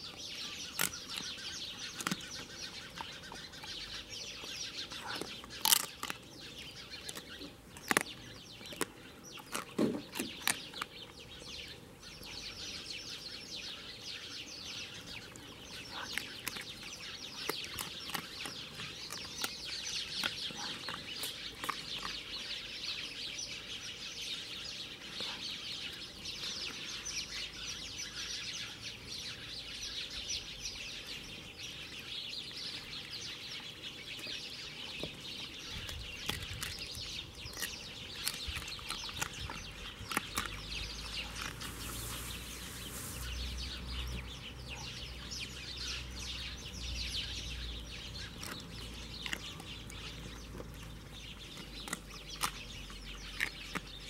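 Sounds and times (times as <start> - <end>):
birds chattering: 0.0 - 54.0
dog chewing and crunching bones: 0.1 - 11.3, 14.9 - 23.0, 34.0 - 42.5, 47.3 - 54.0.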